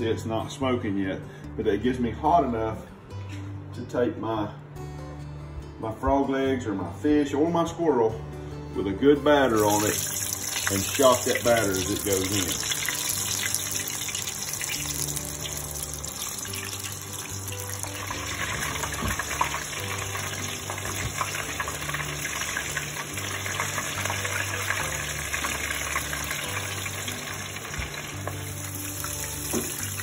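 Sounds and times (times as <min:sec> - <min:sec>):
background music with bass: 0:00.0 - 0:30.0
oil crackling and sizzling: 0:09.6 - 0:30.0.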